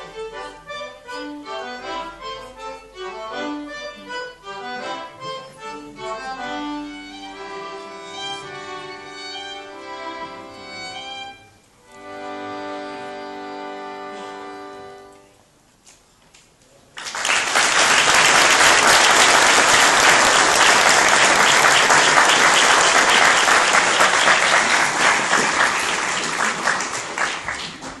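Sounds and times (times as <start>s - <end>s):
audience applauding: 17.0s - 28.0s.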